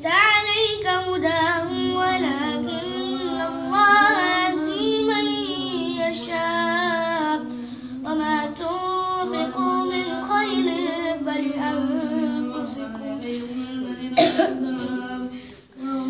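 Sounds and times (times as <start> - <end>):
boy chanting melodically: 0.0 - 16.0
breath: 7.5 - 8.0, 15.4 - 15.7.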